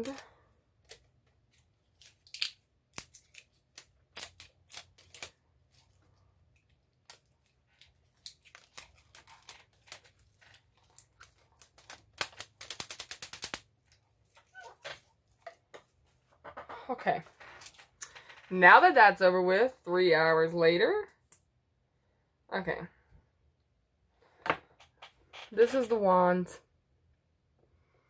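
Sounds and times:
plastic packaging clicking: 7.0s - 14.0s.

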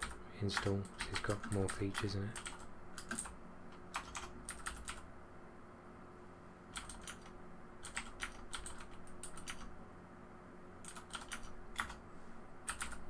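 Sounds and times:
typing on computer keyboard: 0.0s - 5.0s, 6.7s - 9.7s, 10.8s - 12.0s, 12.7s - 13.0s.

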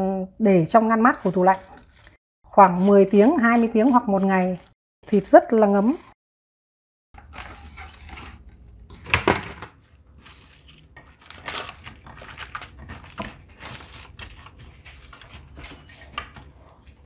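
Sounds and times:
plastic cling wrap crinkling: 1.1s - 2.2s, 9.8s - 16.5s.

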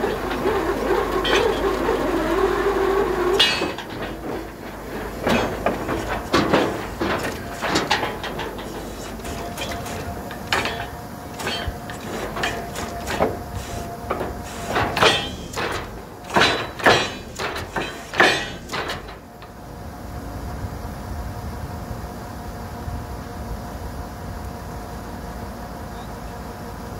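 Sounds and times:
loud knocks and bangs from drilling: 0.0s - 19.4s
drilling rig running: 0.0s - 19.7s.

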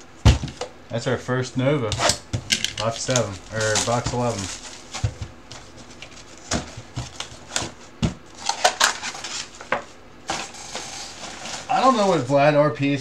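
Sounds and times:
card packs and cardboard handled: 2.0s - 12.5s.

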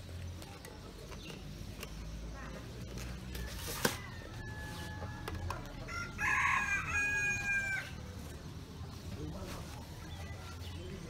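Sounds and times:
rooster crowing: 3.4s - 8.0s.

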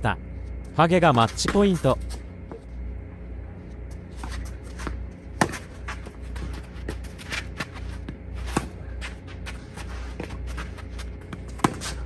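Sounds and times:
shoes scuffing on court: 3.8s - 12.0s
racket striking tennis ball: 4.7s - 6.2s, 11.3s - 12.0s.

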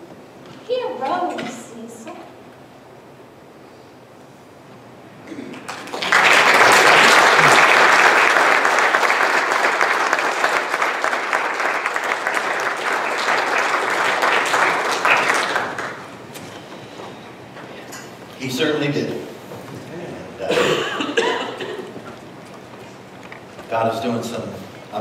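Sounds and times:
congregation applauding: 5.4s - 16.8s, 20.6s - 24.0s.

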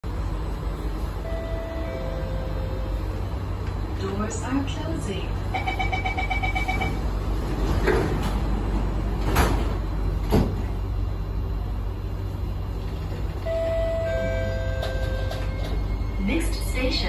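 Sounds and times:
train carriage low hum: 0.0s - 17.0s
electric whine of train: 0.1s - 17.0s
train door warning chime: 1.2s - 3.2s, 5.5s - 7.0s, 13.4s - 17.0s
sliding doors thudding shut: 7.6s - 10.8s.

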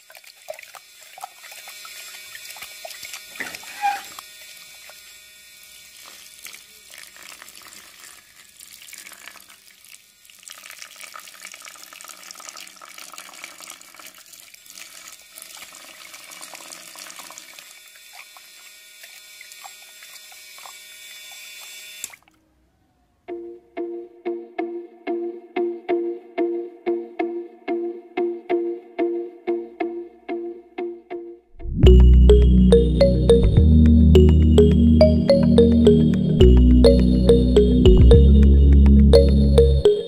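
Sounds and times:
small pump running: 0.0s - 10.6s, 13.9s - 22.2s
wet concrete pouring and splashing: 6.1s - 17.7s.

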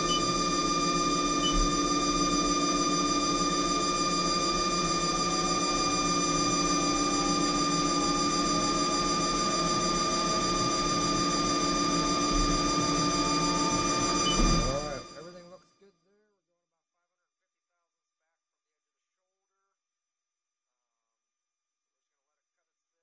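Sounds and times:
lathe machine whine: 0.0s - 15.4s.

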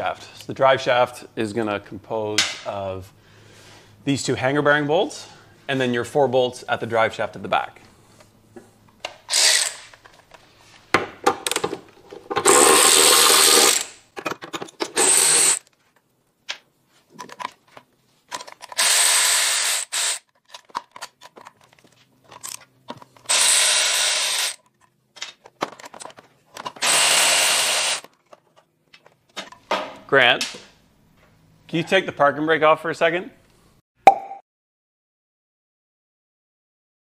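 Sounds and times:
cordless power tool bursts: 9.3s - 9.9s, 12.4s - 14.0s, 14.9s - 15.6s, 18.8s - 20.3s, 23.3s - 24.6s, 26.8s - 28.1s.

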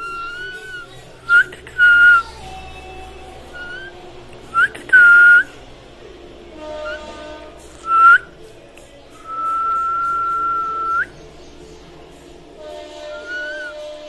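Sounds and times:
parakeet whistling: 0.0s - 2.4s, 3.4s - 5.6s, 7.8s - 8.4s, 9.2s - 11.3s, 13.1s - 13.8s.

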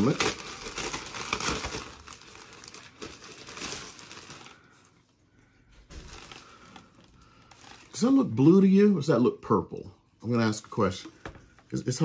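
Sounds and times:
packaging crinkling and rustling: 0.0s - 5.0s, 5.8s - 8.8s.

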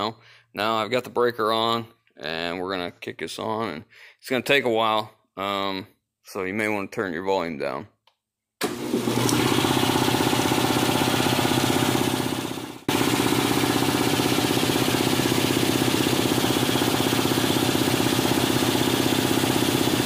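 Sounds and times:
air compressor running: 8.6s - 20.0s.

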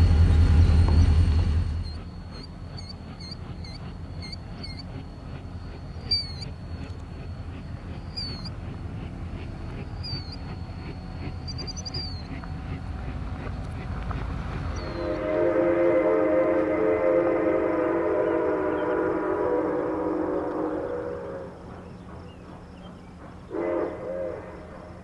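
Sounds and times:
low rumble: 0.0s - 2.1s
birds chirping: 1.8s - 15.3s, 20.1s - 25.0s.

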